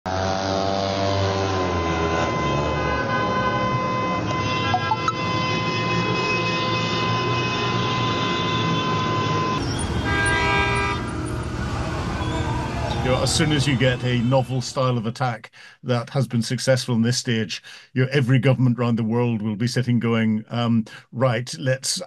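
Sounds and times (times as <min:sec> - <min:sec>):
street noise: 0:00.1 - 0:14.8
vehicle horns sounding: 0:01.6 - 0:14.0.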